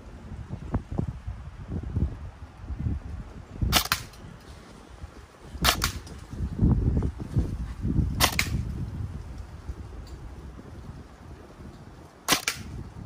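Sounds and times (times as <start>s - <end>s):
airsoft gun snapping: 3.7s - 4.2s, 5.6s - 6.2s, 8.2s - 8.7s, 12.3s - 12.8s.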